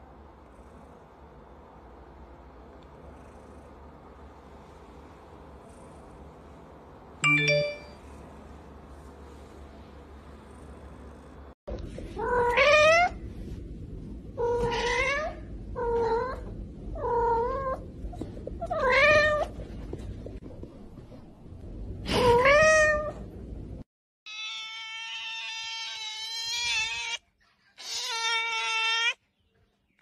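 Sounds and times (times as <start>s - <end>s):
cat meowing: 24.3s - 27.2s, 27.8s - 29.2s
cat yowling: 24.3s - 27.2s, 27.8s - 29.2s.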